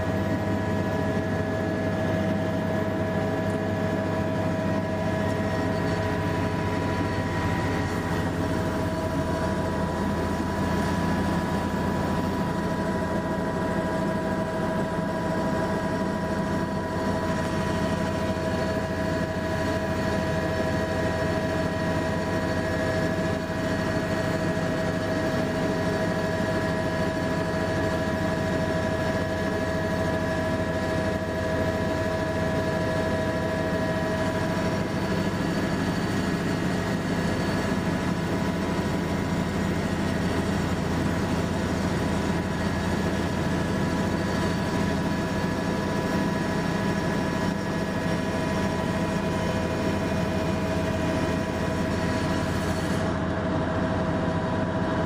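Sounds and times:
helicopter engine whine: 0:00.0 - 0:55.0
helicopter rotor rumble: 0:00.0 - 0:55.0.

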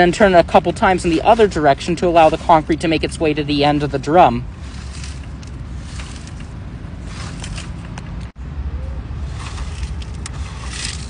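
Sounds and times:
steady low rumble: 0:00.0 - 0:11.0
dust sliding in toy mixer drum: 0:09.2 - 0:11.0.

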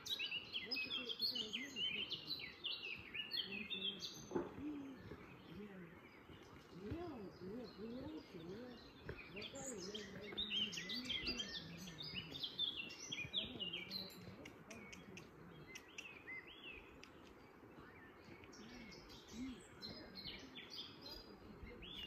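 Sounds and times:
songbirds chirping and trilling: 0:00.0 - 0:22.0.

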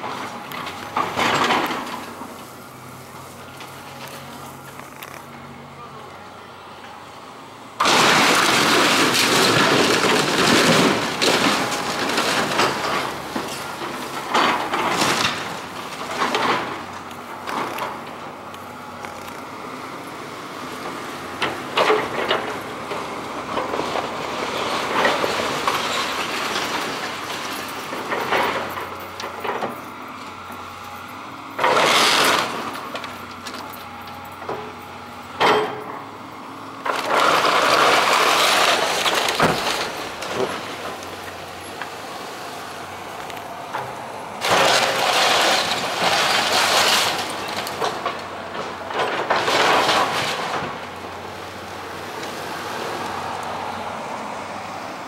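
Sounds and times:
wood and roofing crunching and breaking: 0:00.0 - 0:02.4, 0:07.8 - 0:19.5, 0:20.8 - 0:29.8, 0:31.6 - 0:34.7, 0:36.8 - 0:52.6
excavator engine running: 0:00.0 - 0:55.0.

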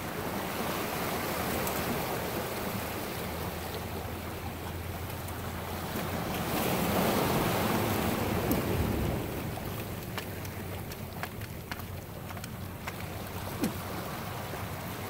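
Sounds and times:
surf washing against rocks: 0:00.0 - 0:15.0
wind on microphone: 0:06.5 - 0:15.0
light ticks: 0:09.7 - 0:13.8.

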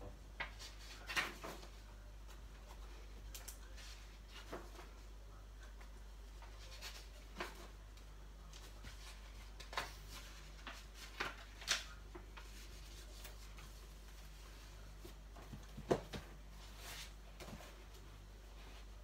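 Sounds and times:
paper pages rustling: 0:08.4 - 0:18.0.

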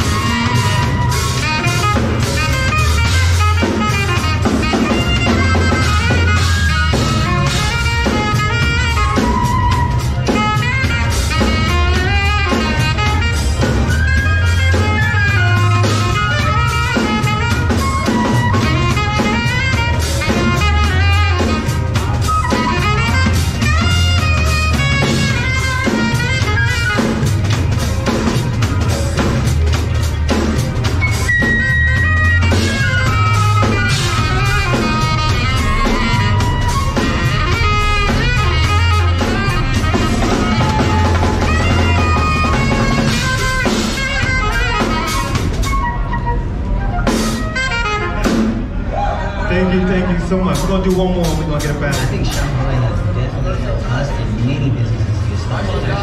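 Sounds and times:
amplified flute melody: 0:00.0 - 0:52.7
drum kit: 0:00.0 - 0:53.2
deep bass line: 0:00.0 - 0:56.0.

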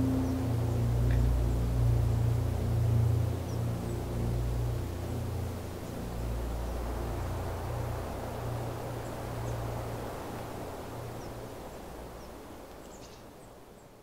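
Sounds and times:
low hum: 0:00.0 - 0:10.4
steady background hiss: 0:00.0 - 0:14.0.

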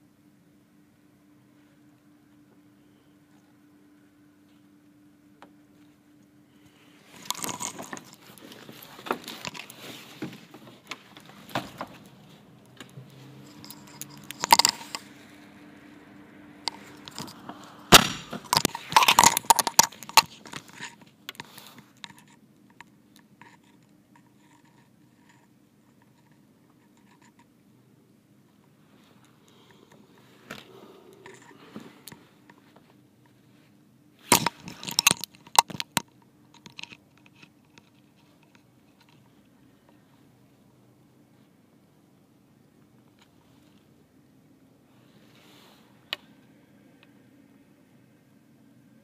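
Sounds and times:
faint steady hum: 0:00.0 - 0:49.0
phone handling noise: 0:16.7 - 0:21.6.

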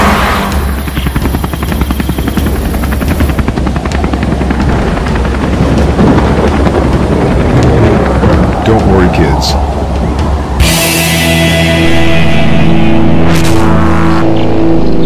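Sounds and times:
helicopter rotor chopping: 0:00.0 - 0:11.2.

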